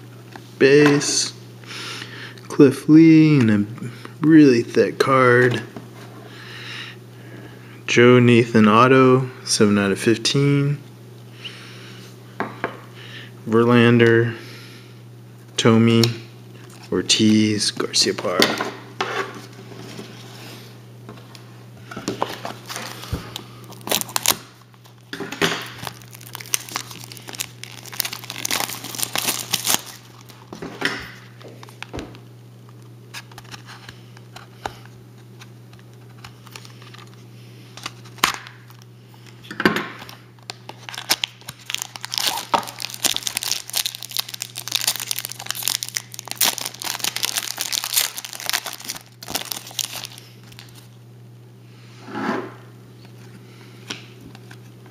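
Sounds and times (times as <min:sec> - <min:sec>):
steady low hum: 0:00.0 - 0:54.9
foil wrapper crinkling and tearing: 0:22.3 - 0:30.6, 0:40.0 - 0:51.0.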